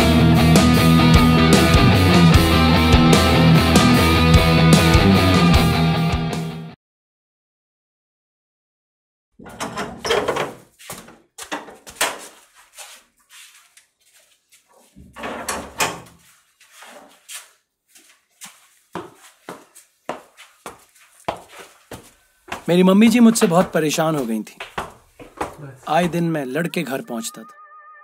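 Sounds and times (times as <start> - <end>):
steel door clanking open: 9.4 - 10.7, 15.1 - 16.2
footsteps: 10.4 - 26.5.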